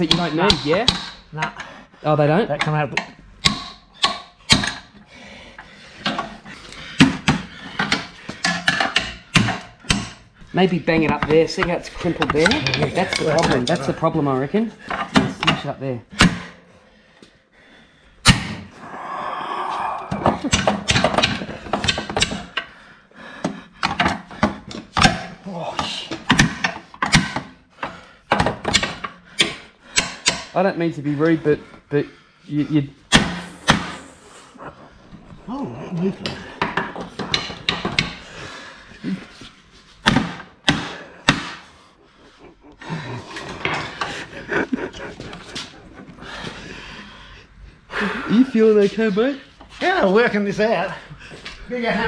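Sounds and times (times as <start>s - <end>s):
hammer striking metal: 0.0s - 1.3s, 3.0s - 4.8s.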